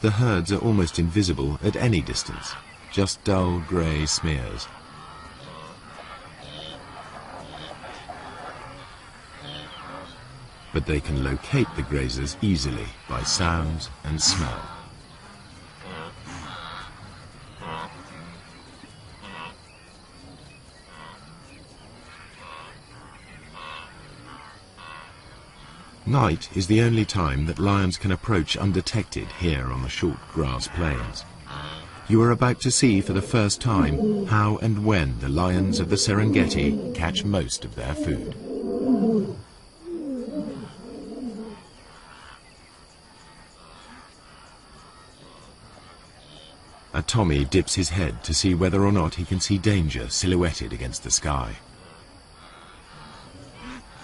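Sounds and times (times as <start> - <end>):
crickets chirring: 0.0 - 54.0
cattle lowing grunts: 4.6 - 10.5, 30.6 - 41.7
lion roaring: 32.8 - 41.6.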